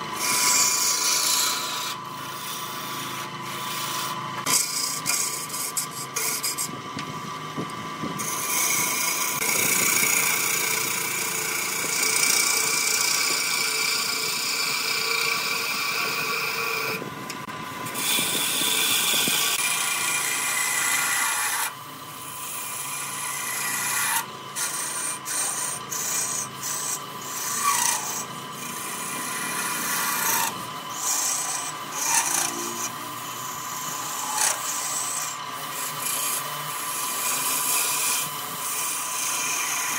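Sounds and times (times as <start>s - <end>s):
lathe whine: 0.0s - 39.9s
tool scraping wood on lathe: 0.0s - 39.9s.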